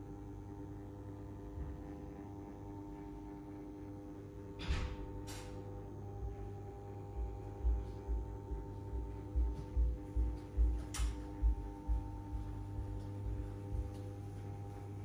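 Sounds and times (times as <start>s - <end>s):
soft low beat: 5.7s - 15.0s.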